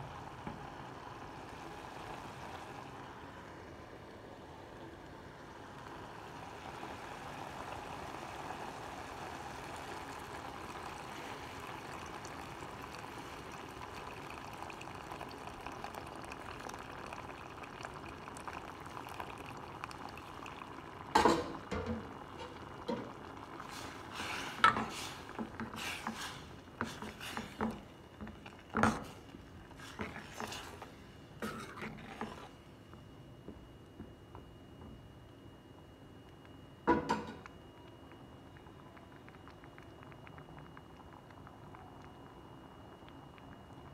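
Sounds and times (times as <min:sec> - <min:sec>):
curry hissing in a pan: 0:00.0 - 0:32.5
steel ladle scraping a pan: 0:24.2 - 0:27.7, 0:29.8 - 0:32.6.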